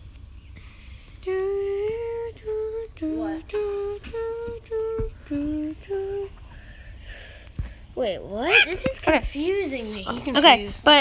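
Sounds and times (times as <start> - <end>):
person humming a tune: 1.2 - 6.4.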